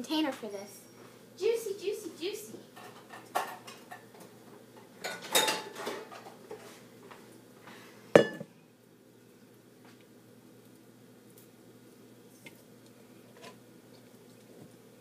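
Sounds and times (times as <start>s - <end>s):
kitchenware clattering: 2.8s - 4.1s, 5.0s - 6.3s, 8.2s - 8.5s.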